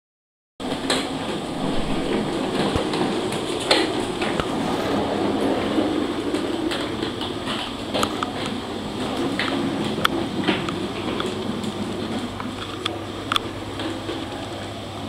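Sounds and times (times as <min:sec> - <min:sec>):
plastic wheels rolling on wooden floor: 0:00.6 - 0:15.0
sharp clicks and knocks: 0:05.7 - 0:14.4.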